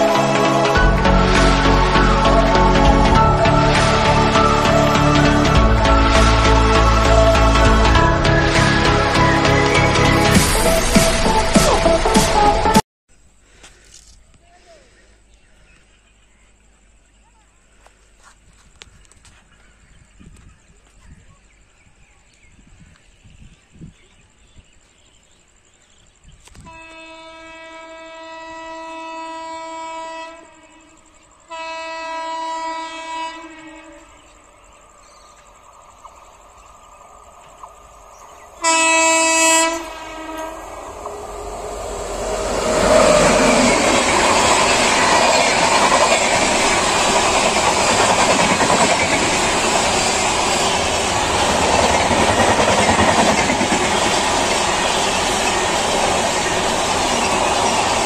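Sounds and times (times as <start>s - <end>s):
train passing at speed: 0.0s - 12.8s, 26.7s - 58.0s
locomotive horn blasts: 26.6s - 34.2s, 38.6s - 43.8s.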